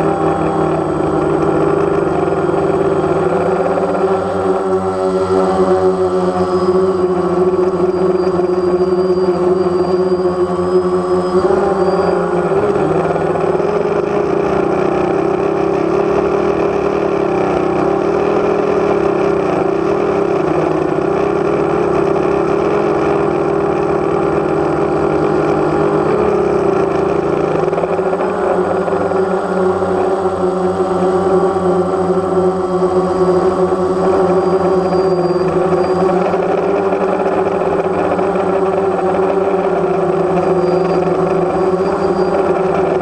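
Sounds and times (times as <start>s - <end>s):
drone propellers humming: 0.0s - 43.0s.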